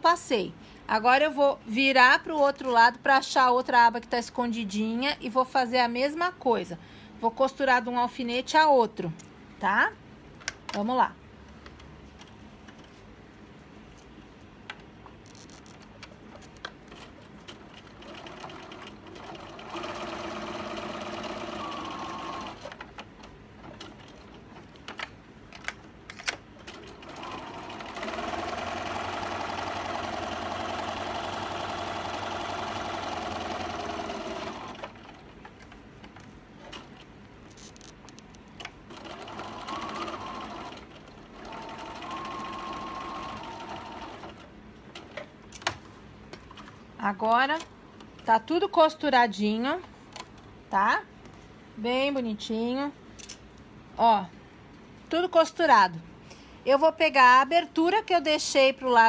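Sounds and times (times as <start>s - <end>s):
sewing machine stitching: 16.9s - 22.9s, 26.6s - 35.2s, 38.9s - 44.5s.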